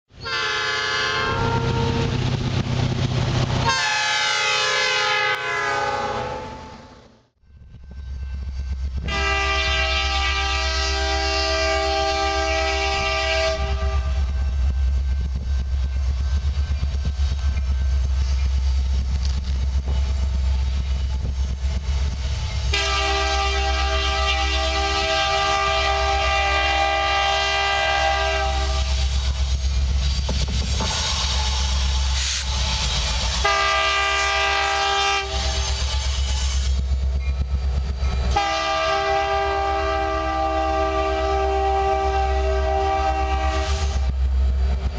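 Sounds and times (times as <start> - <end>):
train rumble: 0.1 - 44.9
locomotive air horn blast: 0.2 - 2.2, 3.6 - 7.0, 9.0 - 14.5, 22.7 - 29.4, 33.3 - 35.8, 38.3 - 44.1.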